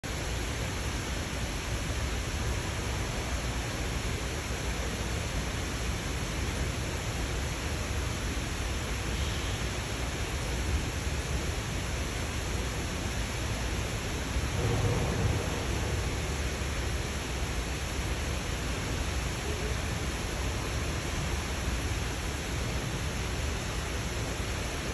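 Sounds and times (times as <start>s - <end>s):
steady rushing noise: 0.0s - 24.9s.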